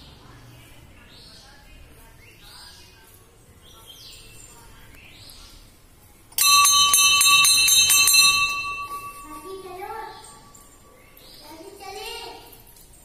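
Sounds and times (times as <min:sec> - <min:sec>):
temple bell rung rapidly: 0:06.4 - 0:10.4.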